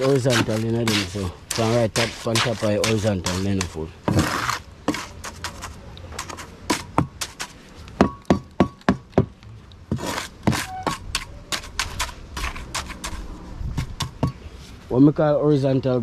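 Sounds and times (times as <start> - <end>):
masonry knocks and metallic clinks: 8.0 - 11.6.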